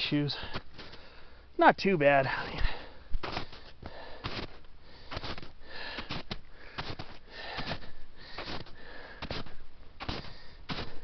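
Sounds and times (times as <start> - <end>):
person breathing: 0.4 - 1.5, 2.3 - 11.0
footsteps crunching in snow: 2.4 - 11.0.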